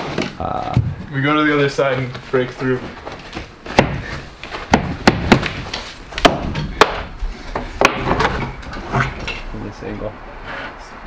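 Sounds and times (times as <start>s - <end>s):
kicks thudding on drywall: 3.7s - 7.1s.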